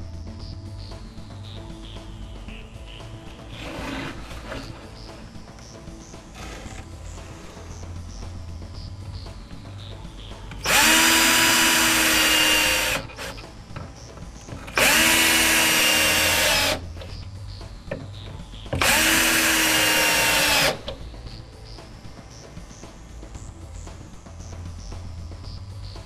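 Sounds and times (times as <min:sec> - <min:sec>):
electric drill whining: 0:03.4 - 0:07.6, 0:10.5 - 0:17.2, 0:18.7 - 0:21.0.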